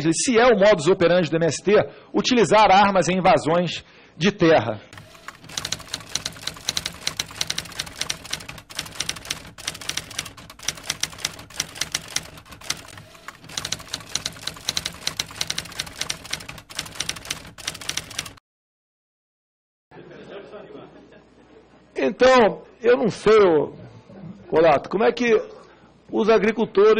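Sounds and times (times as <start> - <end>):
typewriter keystrokes clacking: 5.0 - 18.4.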